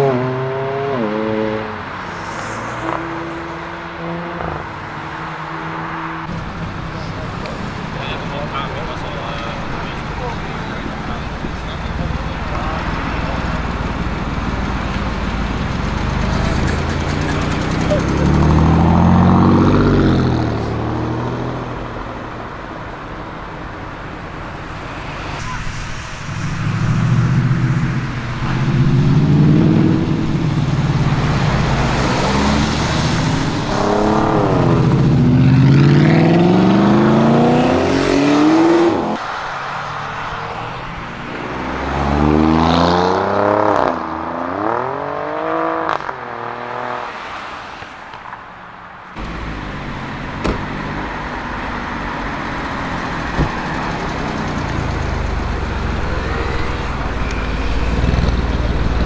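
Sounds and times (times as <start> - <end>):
car engine accelerating hard: 5.6 - 22.2, 24.5 - 39.2, 49.2 - 59.0.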